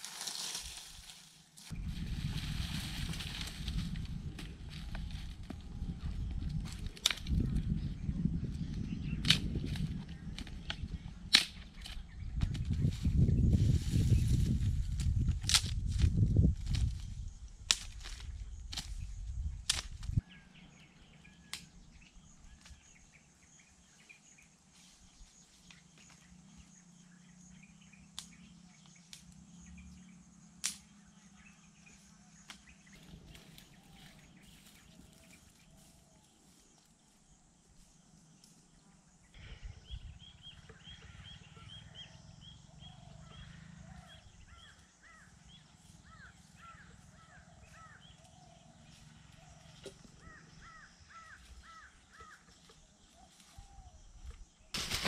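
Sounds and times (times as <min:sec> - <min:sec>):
birds chirping: 0:18.3 - 0:55.0.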